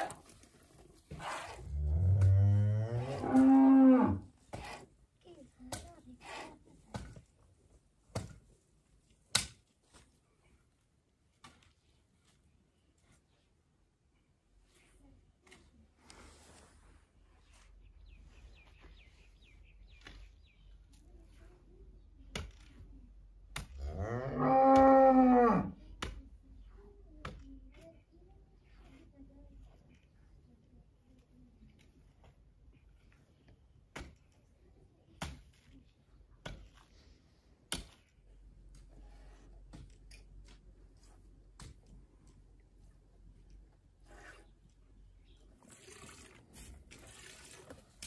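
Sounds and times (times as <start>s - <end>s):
digging tool chopping earth: 8.1s - 8.5s, 9.3s - 9.7s, 23.4s - 23.8s, 33.8s - 34.4s, 35.2s - 35.8s, 37.6s - 38.9s
scraping in earth: 15.9s - 21.4s, 44.0s - 48.0s.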